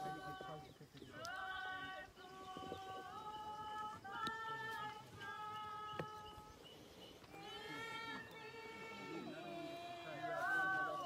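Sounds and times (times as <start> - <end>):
woman singing slow melody: 0.0 - 6.6.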